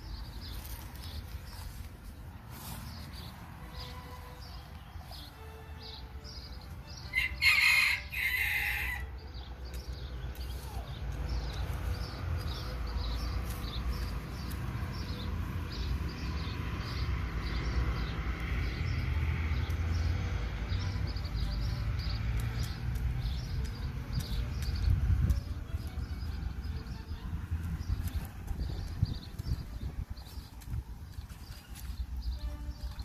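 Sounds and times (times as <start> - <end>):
rooster crowing: 7.1 - 9.1.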